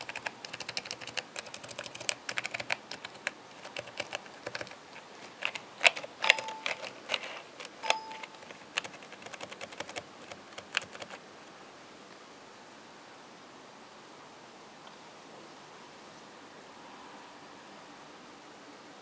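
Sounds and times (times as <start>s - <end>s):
laptop keys clicking: 0.0s - 11.2s.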